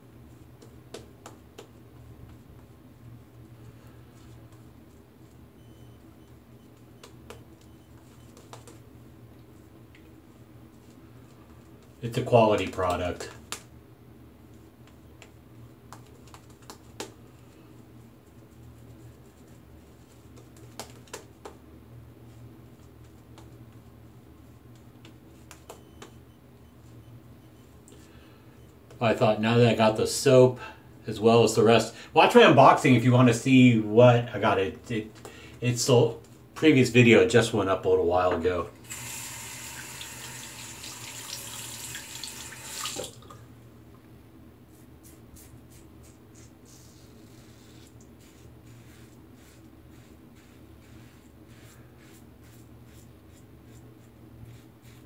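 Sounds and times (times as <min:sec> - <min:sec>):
shaving brush on lather: 0:45.0 - 0:55.0.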